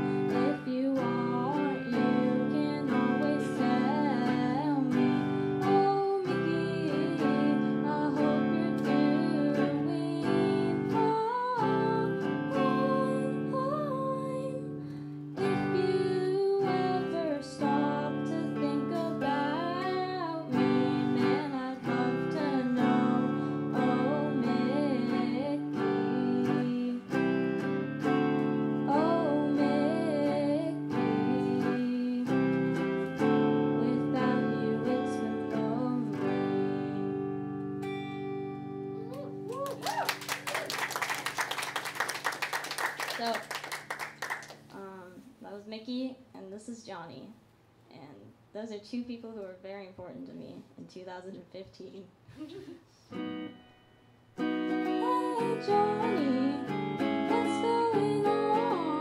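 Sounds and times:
person singing: 0.0s - 14.8s, 15.4s - 27.8s, 28.7s - 37.6s, 54.4s - 59.0s
electric guitar strumming: 0.0s - 45.0s, 53.1s - 59.0s.

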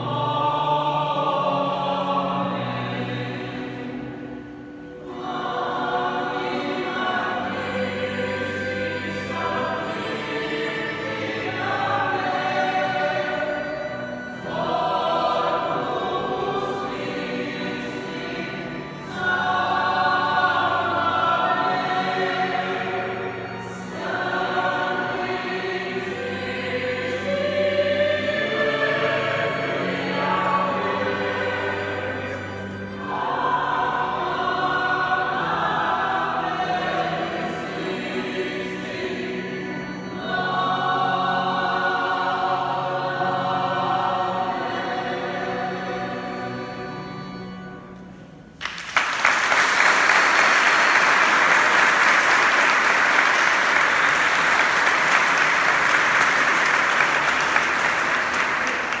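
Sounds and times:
choir singing: 0.0s - 59.0s
audience applause: 48.6s - 59.0s.

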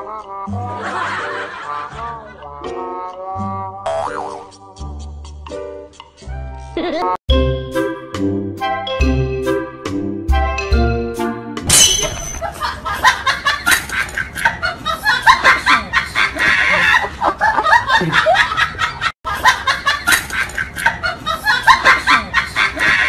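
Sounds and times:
people laughing: 0.6s - 2.6s, 12.4s - 23.0s.

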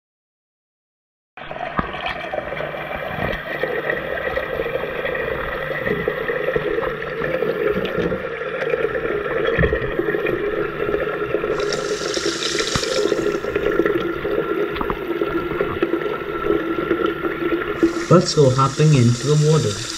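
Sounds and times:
water pouring heard underwater: 1.4s - 19.9s
high hiss: 11.6s - 13.5s, 17.8s - 19.9s.

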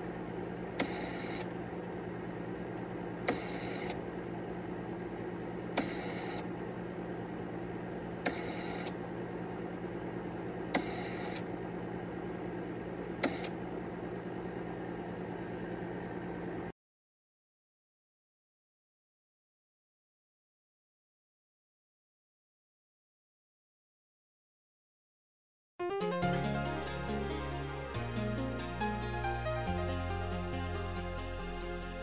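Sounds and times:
computer humming: 0.0s - 16.7s
tape drive clicking and running: 0.0s - 16.7s.

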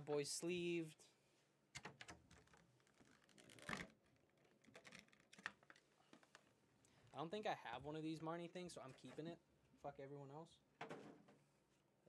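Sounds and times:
plastic card handling rustles: 2.3s - 6.5s.

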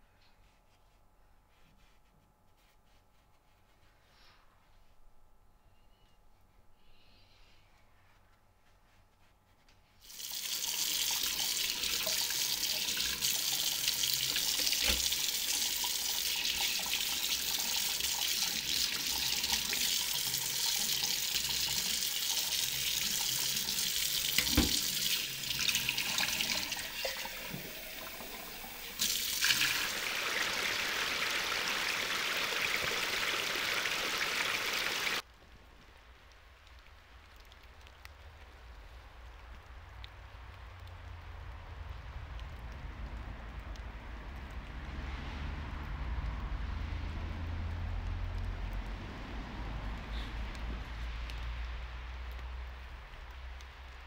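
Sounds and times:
tap water running into metal sink: 10.1s - 35.2s
knocks against sink: 24.4s - 24.8s.

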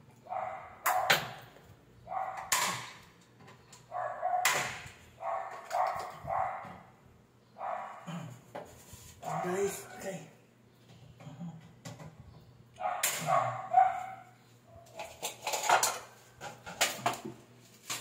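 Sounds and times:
dog barking: 0.3s - 1.3s, 2.1s - 2.8s, 3.9s - 4.6s, 5.2s - 6.9s, 7.6s - 8.1s, 9.2s - 10.1s, 12.8s - 14.4s.

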